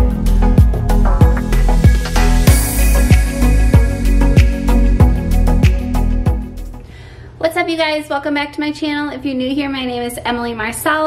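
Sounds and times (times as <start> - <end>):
deep kick drums: 0.0 - 6.7
sustained bass line: 0.0 - 6.8
hissing swell: 0.3 - 6.7.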